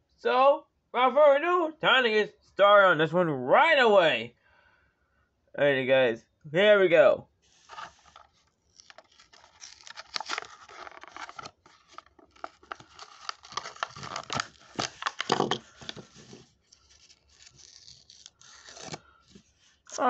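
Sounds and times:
plastic packaging crinkling: 7.5 - 20.0
cardboard tearing: 7.6 - 20.0.

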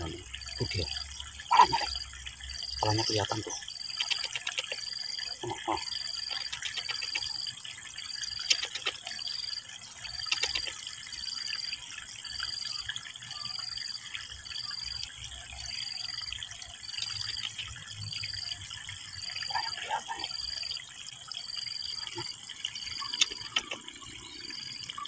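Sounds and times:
trickling stream water: 0.0 - 25.0
small clicks: 3.9 - 4.9, 6.3 - 7.4, 8.4 - 9.0, 10.1 - 10.8, 23.0 - 24.0.

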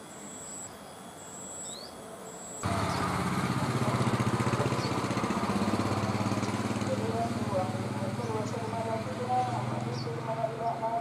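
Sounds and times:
faint high bird chirps: 0.0 - 3.2
small engine running: 2.6 - 11.0.

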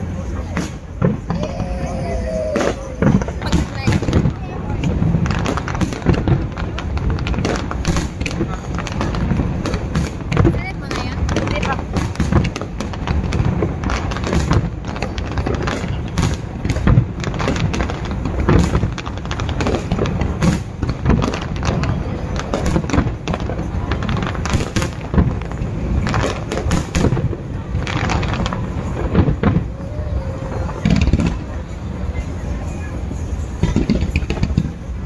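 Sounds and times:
fireworks bangs and crackles: 0.0 - 35.0
voices: 0.0 - 35.0.

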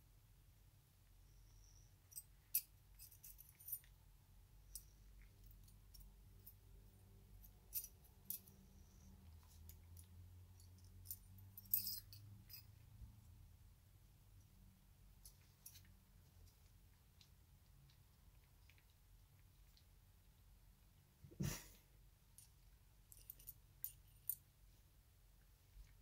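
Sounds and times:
small metal parts clicking and clinking: 2.0 - 4.0, 7.4 - 8.6, 9.4 - 12.8, 15.2 - 16.6, 22.4 - 24.4.

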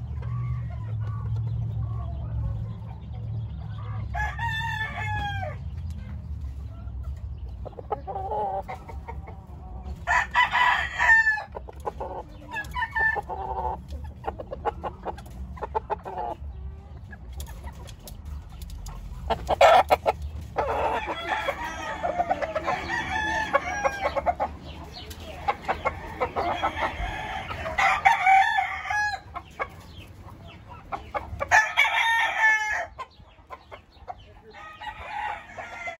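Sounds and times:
chickens clucking: 0.0 - 36.0
roosters crowing: 3.7 - 5.8, 7.6 - 17.0, 19.2 - 36.0.

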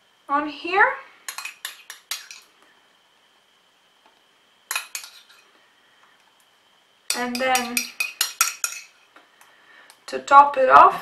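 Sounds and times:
metal spoon clinking ceramic bowl: 1.3 - 2.4, 4.7 - 5.4, 7.1 - 9.0.

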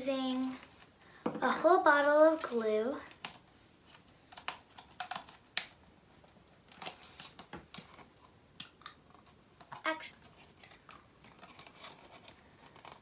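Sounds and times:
plastic bottle clicks and crackles: 3.1 - 5.8.

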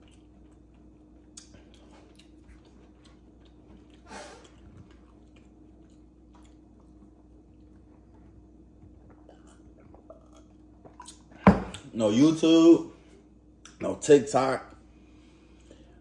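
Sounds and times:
quiet chewing: 0.0 - 11.3
low steady hum: 0.0 - 16.0.

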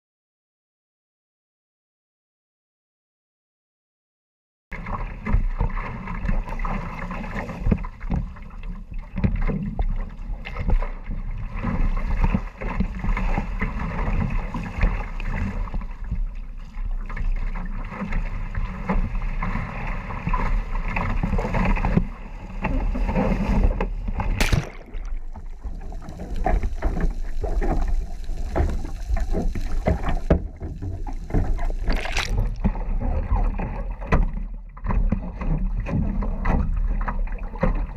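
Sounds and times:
underwater sound: 4.7 - 37.9
paddle strokes: 4.8 - 37.9
sea water rushing and splashing: 4.8 - 37.9
sharp splash: 24.2 - 25.8, 31.3 - 32.8.

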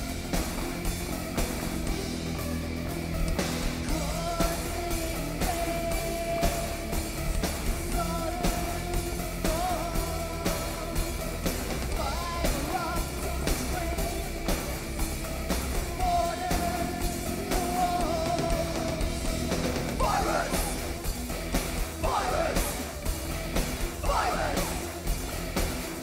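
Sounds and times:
industrial metal band playing: 0.0 - 26.0
drum beat: 14.7 - 26.0.

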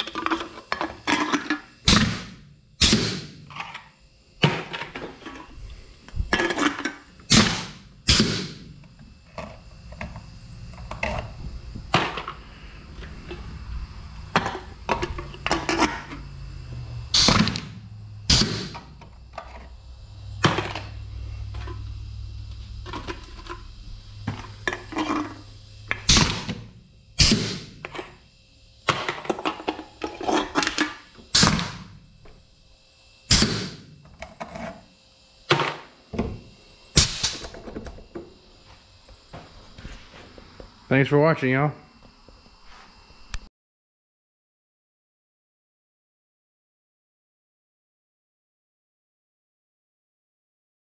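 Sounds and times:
can crusher clanking: 0.0 - 2.1, 6.3 - 7.7, 14.3 - 16.2, 24.3 - 26.6, 28.9 - 31.8
low steady hum: 0.0 - 43.5.

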